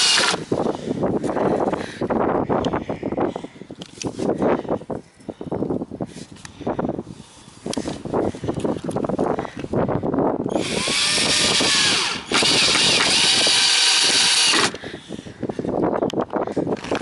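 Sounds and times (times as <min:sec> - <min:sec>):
power drill driving screw into wood: 0:00.0 - 0:00.5, 0:10.5 - 0:14.8.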